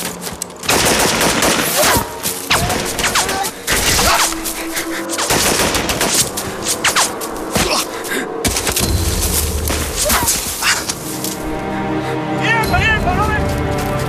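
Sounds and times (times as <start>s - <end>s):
dense rapid gunfire: 0.7s - 1.9s.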